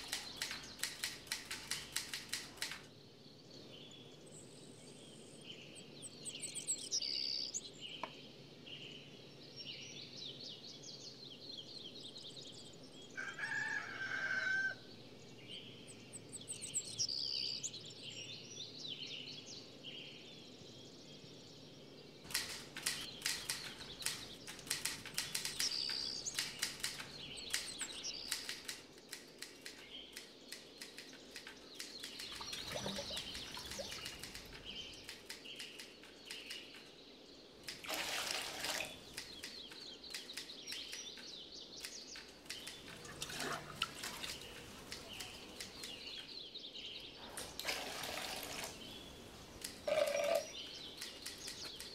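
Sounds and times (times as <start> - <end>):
sharp clicks and knocks: 0.0 - 2.9, 22.3 - 36.9
birds chirping: 0.0 - 51.9.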